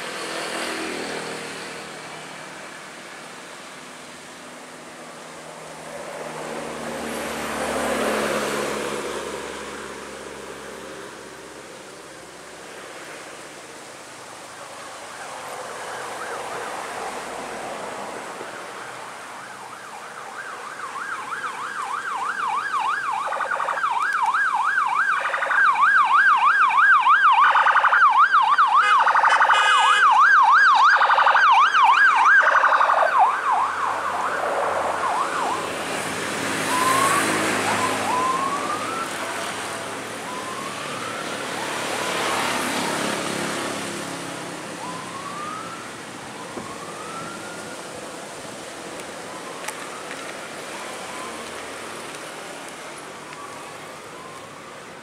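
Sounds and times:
emergency siren warbling: 14.7 - 17.2, 18.3 - 52.2, 52.9 - 55.0
short rising siren chirps: 28.8 - 39.4.

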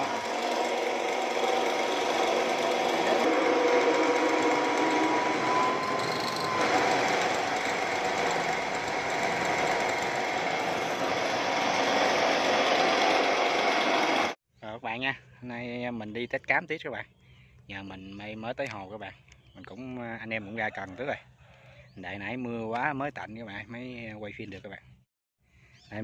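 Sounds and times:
electric grain mill grinding: 0.0 - 14.4.

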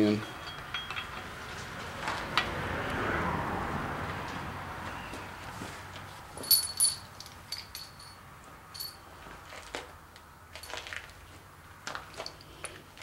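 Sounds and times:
metal engine parts clinking: 0.0 - 1.5, 6.4 - 9.1, 10.5 - 11.2.

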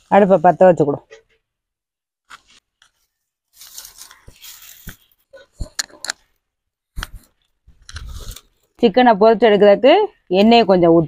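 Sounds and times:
dry kindling rustling and crunching: 3.5 - 5.2.

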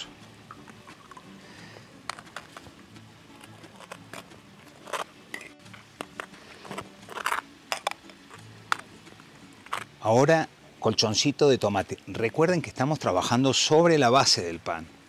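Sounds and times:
soft background music: 0.0 - 15.0
metal spoon scraping and clinking: 3.3 - 8.8.

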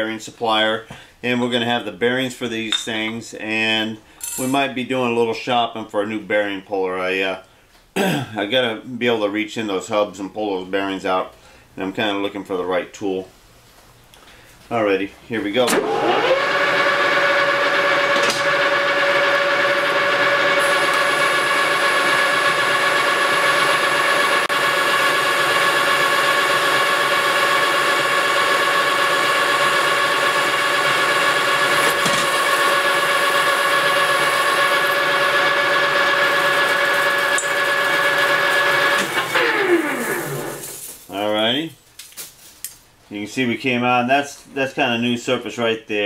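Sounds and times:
lathe spindle winding down: 15.6 - 40.6
lathe gear whine: 15.8 - 40.6.

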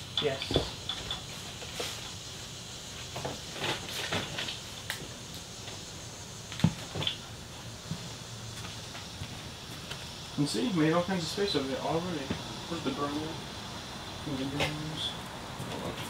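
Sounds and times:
objects knocking and clattering: 0.2 - 2.1.

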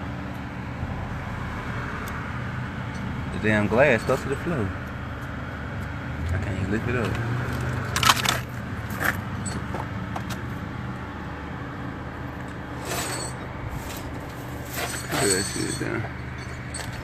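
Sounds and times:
glass and debris clinking: 9.4 - 9.8, 12.8 - 17.0
rustle: 12.5 - 17.0.

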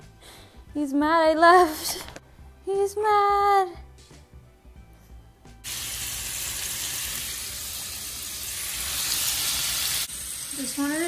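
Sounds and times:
food sizzling in a pan: 5.6 - 11.0.

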